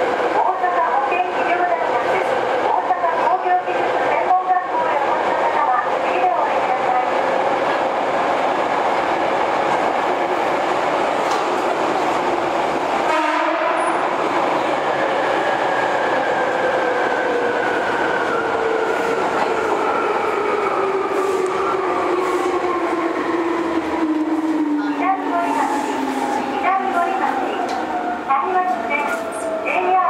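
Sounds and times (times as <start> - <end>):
train wheel and rail rumble: 0.0 - 30.0.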